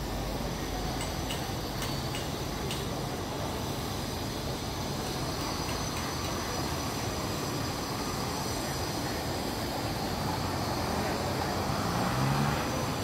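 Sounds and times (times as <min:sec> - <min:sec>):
faint high-pitched ticks: 0:01.0 - 0:03.0.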